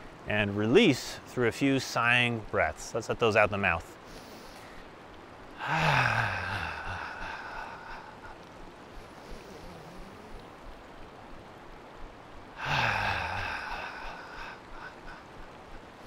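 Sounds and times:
river rushing: 0.0s - 16.0s
man sighing: 5.6s - 8.4s, 12.6s - 15.2s.

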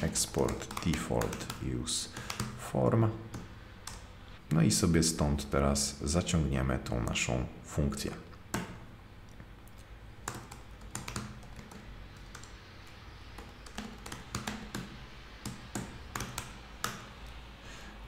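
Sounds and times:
keyboard keystroke clicks: 13.4s - 17.1s.

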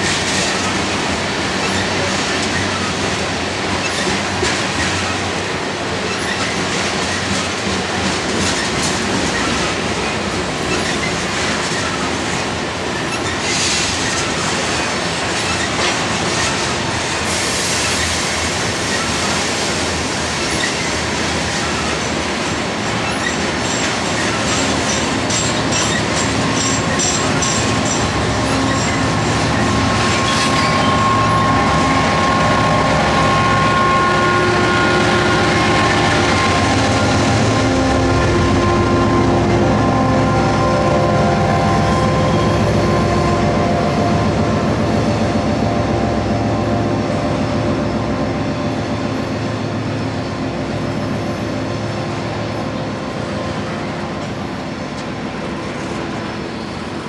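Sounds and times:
train wheels clattering: 0.0s - 46.6s
diesel locomotive rumble: 0.0s - 57.0s
high wheel squeal: 13.0s - 22.1s, 22.9s - 55.0s.

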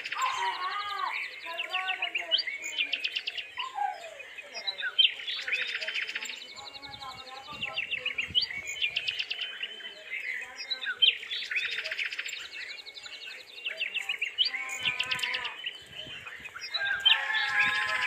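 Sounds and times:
birds chirping in trills: 0.0s - 18.0s
drawn-out bird call: 0.0s - 18.0s.

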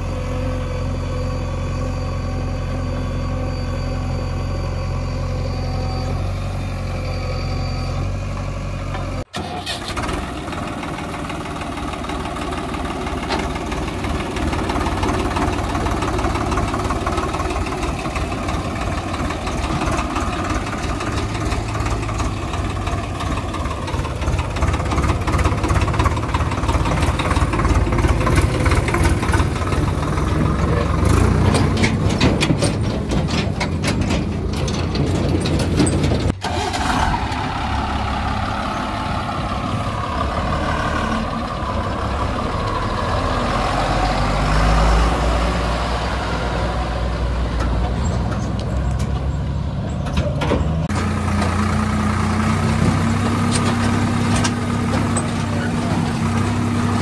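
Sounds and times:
tractor diesel engine passing: 0.0s - 57.0s
clattering: 24.8s - 36.4s.

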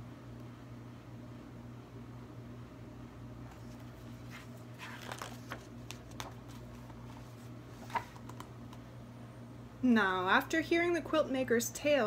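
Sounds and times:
book pages rustling: 3.5s - 8.5s.

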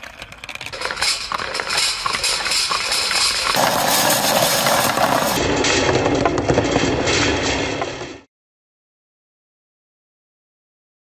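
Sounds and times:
balls rolling in plastic funnel: 0.0s - 7.0s
plastic balls clattering on track: 0.0s - 7.0s.

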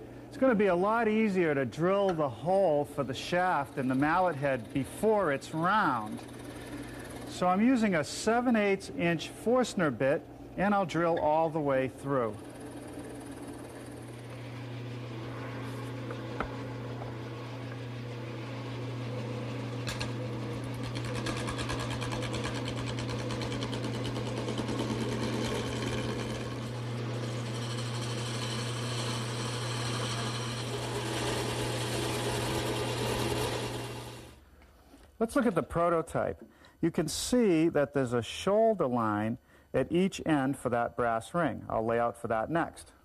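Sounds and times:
power drill boring through wood: 5.8s - 7.4s, 19.9s - 34.4s.

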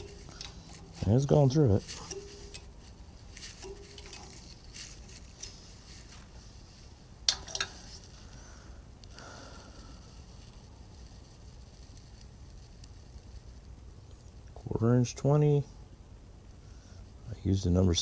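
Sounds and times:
faint metal scraping: 0.0s - 8.2s.

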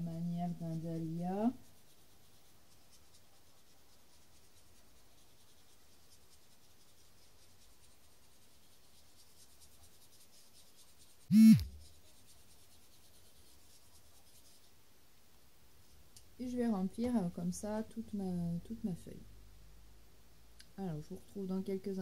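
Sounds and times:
loud falling-pitch sound: 11.3s - 11.7s.

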